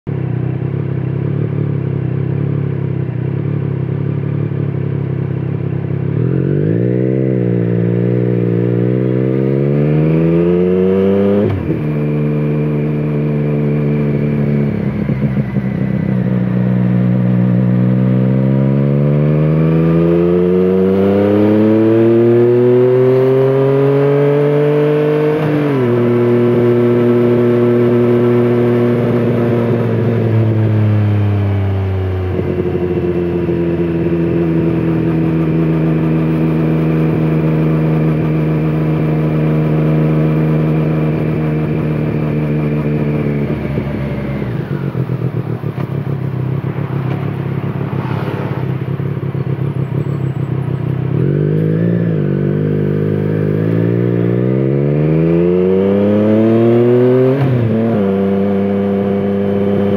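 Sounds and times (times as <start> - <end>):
motorcycle engine accelerating: 0.1 - 59.9.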